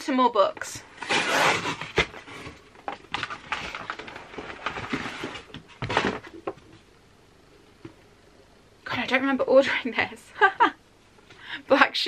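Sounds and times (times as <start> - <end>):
cardboard packaging rustling: 0.9 - 6.8.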